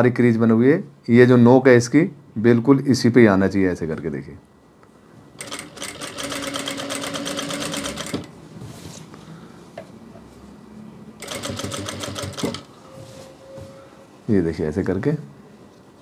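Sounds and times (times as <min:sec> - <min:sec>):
sewing machine stitching: 0:05.4 - 0:08.3, 0:11.2 - 0:12.7.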